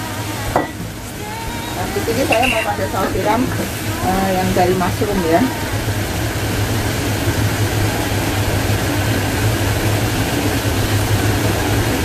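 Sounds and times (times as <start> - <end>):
exhaust fan humming and rushing: 0.0 - 12.0.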